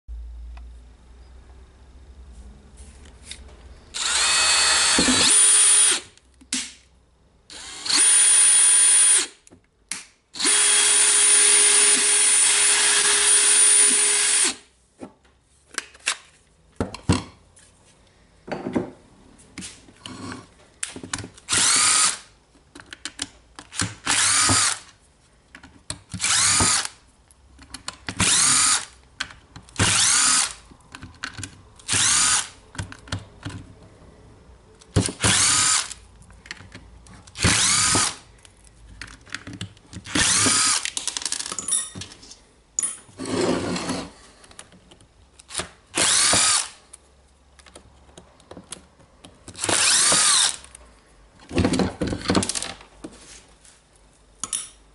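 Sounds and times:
hammer drill whining: 0:03.9 - 0:06.1, 0:07.5 - 0:09.4, 0:10.4 - 0:14.6, 0:21.5 - 0:22.3, 0:24.0 - 0:24.9, 0:26.2 - 0:27.0, 0:28.2 - 0:28.9, 0:29.8 - 0:30.6, 0:31.9 - 0:32.6, 0:35.2 - 0:36.0, 0:37.4 - 0:38.2, 0:40.1 - 0:40.9, 0:46.0 - 0:46.8, 0:49.6 - 0:50.7
cordless driver whirring: 0:04.0 - 0:06.1, 0:07.5 - 0:09.4, 0:10.4 - 0:14.6, 0:21.4 - 0:22.3, 0:23.7 - 0:24.9, 0:26.2 - 0:27.0, 0:28.2 - 0:29.0, 0:29.8 - 0:30.6, 0:31.8 - 0:32.6, 0:35.1 - 0:36.0, 0:37.3 - 0:38.2, 0:40.0 - 0:41.0, 0:45.4 - 0:46.8, 0:49.6 - 0:50.7.

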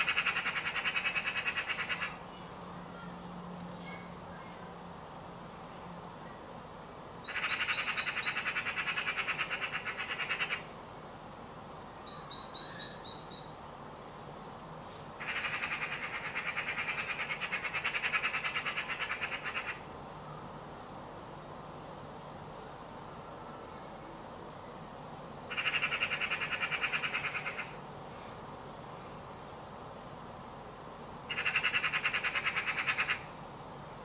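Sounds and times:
magpie chattering rattle: 0:25.5 - 0:27.7, 0:31.3 - 0:33.2.

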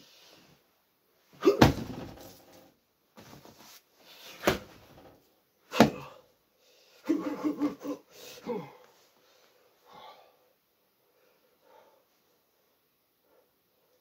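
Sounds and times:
punches thudding on punching bag: 0:01.4 - 0:02.3, 0:04.4 - 0:05.1.

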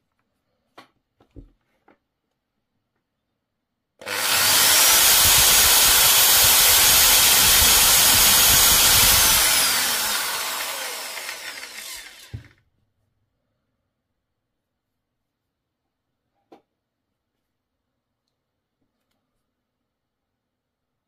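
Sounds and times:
electric drill running: 0:04.0 - 0:12.6.

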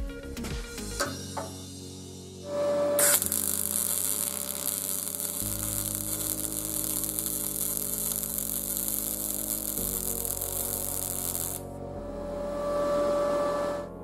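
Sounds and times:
background music with sustained notes: 0:00.0 - 0:14.0
welding arc crackling and hissing: 0:03.0 - 0:11.6.

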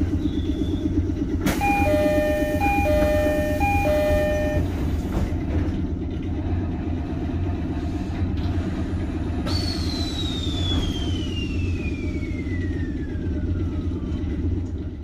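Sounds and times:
train low hum: 0:00.0 - 0:15.0
door chime: 0:01.6 - 0:04.7
high tone falling in pitch: 0:01.6 - 0:04.7.

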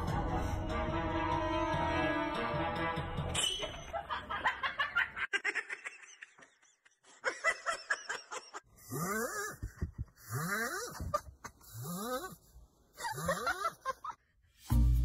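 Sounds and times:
person laughing: 0:03.9 - 0:12.4, 0:13.0 - 0:14.2.

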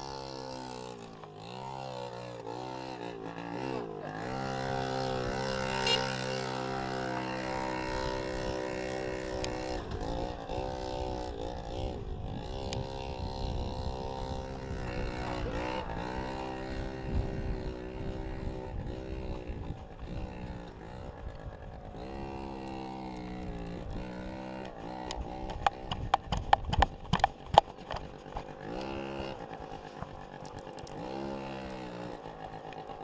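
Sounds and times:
scooter engine revving: 0:00.0 - 0:33.0.

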